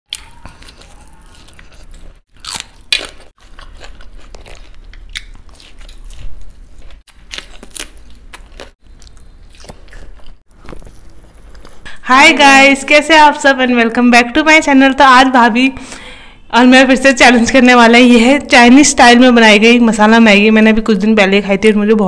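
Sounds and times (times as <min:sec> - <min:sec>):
crisp bites and chewing: 0:00.1 - 0:11.9.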